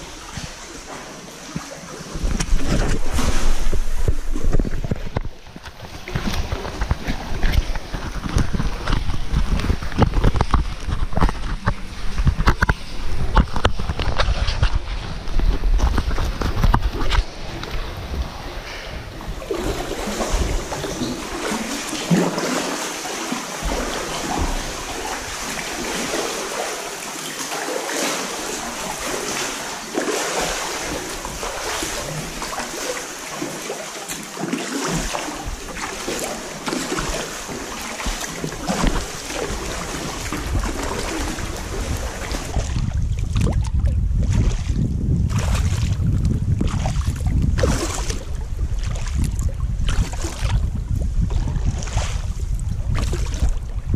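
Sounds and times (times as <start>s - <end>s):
paddle strokes: 0.0s - 53.9s
water splashing against rock walls: 0.0s - 53.9s
wind rumble on microphone: 2.1s - 22.0s, 35.0s - 53.9s.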